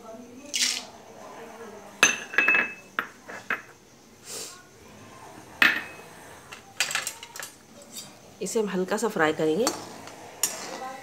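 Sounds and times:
metal utensils clinking: 0:05.6 - 0:08.2, 0:09.5 - 0:11.0.

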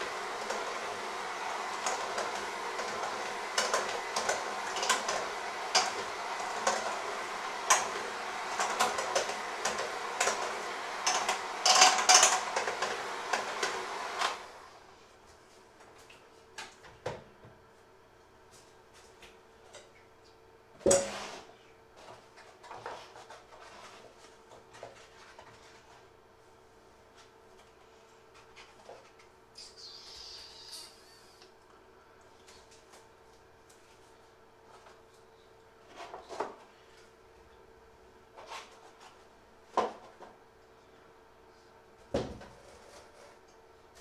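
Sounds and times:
electric hand mixer running: 0:00.0 - 0:14.8.

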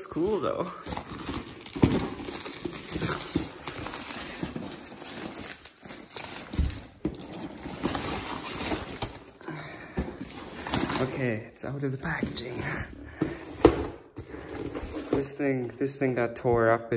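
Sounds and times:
plastic mailer bag crinkling and tearing: 0:00.0 - 0:09.4.

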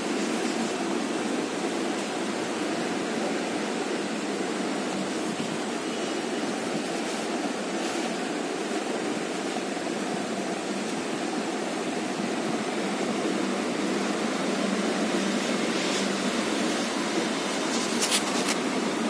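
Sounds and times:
steady rushing noise: 0:00.0 - 0:19.0
short crisp rustles: 0:17.5 - 0:18.6.

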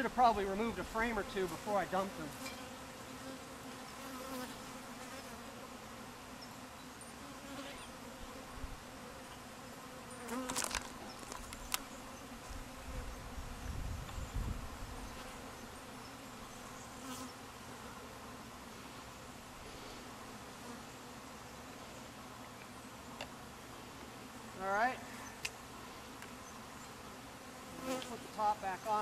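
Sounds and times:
bees buzzing: 0:00.0 - 0:29.0.

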